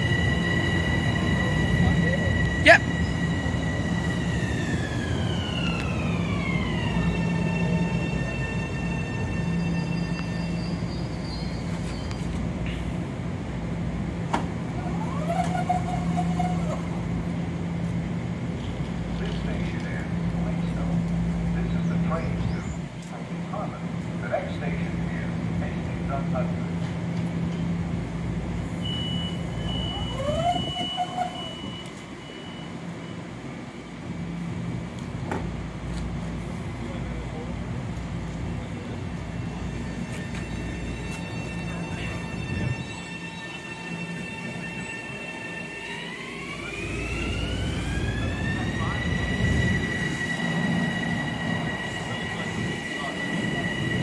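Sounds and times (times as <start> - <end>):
sliding door whine: 0.0 - 11.2, 14.7 - 17.0, 28.8 - 33.2, 39.8 - 54.0
train car low hum: 0.0 - 54.0
click: 12.0 - 12.2
train doors sliding shut: 14.2 - 17.0
high door warning tone: 28.8 - 33.3.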